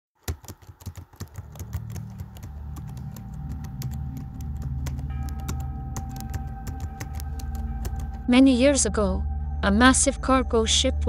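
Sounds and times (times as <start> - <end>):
keyboard typing clicks: 0.2 - 8.2
low steady drone: 1.5 - 11.0.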